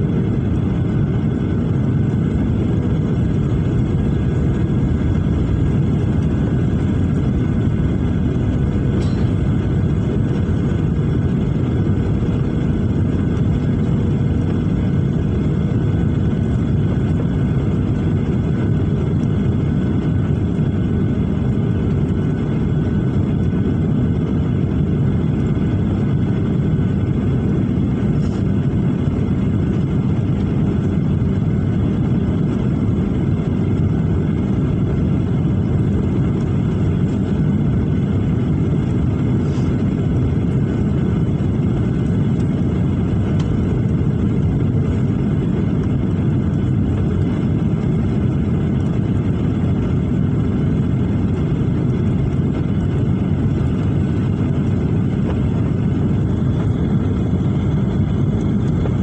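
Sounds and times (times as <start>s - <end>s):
jet engines and rushing air: 0.0s - 59.0s
faint steady tones: 1.0s - 14.7s.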